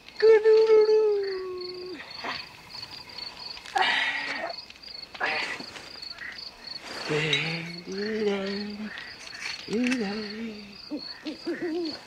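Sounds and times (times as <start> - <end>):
crickets chirping: 0.0 - 12.0
man making wordless sounds: 0.2 - 2.0, 7.1 - 9.0, 9.7 - 12.0.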